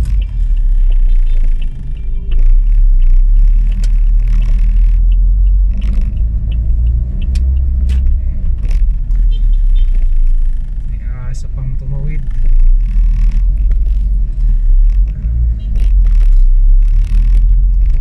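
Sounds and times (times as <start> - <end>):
sharp clicks: 0.0 - 9.2
car interior engine rumble: 0.0 - 18.0.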